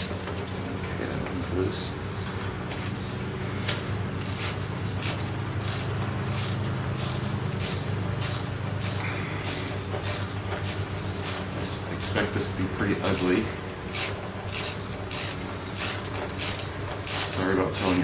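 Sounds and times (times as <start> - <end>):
steady low hum: 0.0 - 18.0
ratchet and bolts clicking: 3.6 - 12.4, 13.0 - 18.0.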